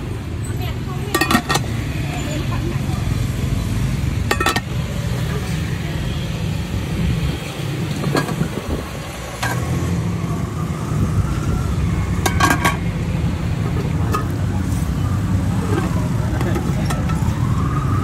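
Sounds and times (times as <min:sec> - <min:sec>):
street traffic rumble: 0:00.0 - 0:18.0
metal pot lids clinking: 0:01.1 - 0:01.8, 0:04.2 - 0:04.7, 0:07.9 - 0:08.6, 0:09.4 - 0:09.7, 0:12.2 - 0:12.8, 0:13.7 - 0:14.3.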